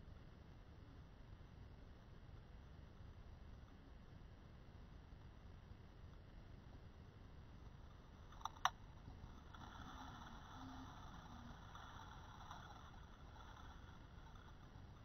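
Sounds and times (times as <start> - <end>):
faint whir: 0.0 - 15.0
faint underwater hiss: 7.7 - 15.0.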